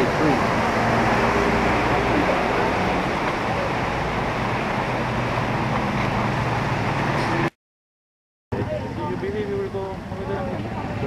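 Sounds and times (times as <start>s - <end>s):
traffic rushing noise: 0.0s - 7.6s.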